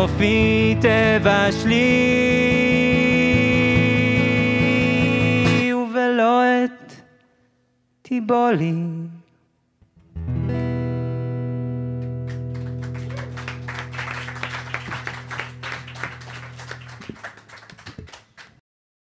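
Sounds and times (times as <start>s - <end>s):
audience applause: 12.2s - 18.6s.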